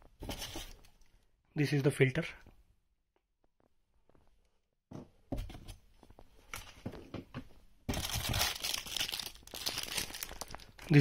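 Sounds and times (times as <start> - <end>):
plastic wrap and cardboard crinkling: 7.9 - 11.0.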